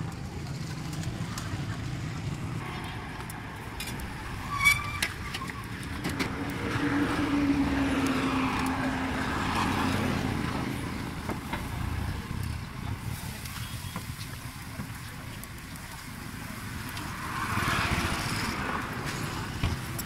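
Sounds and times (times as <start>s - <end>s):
motor vehicle passing: 0.0s - 12.6s, 17.1s - 20.0s
street noise: 0.0s - 20.0s.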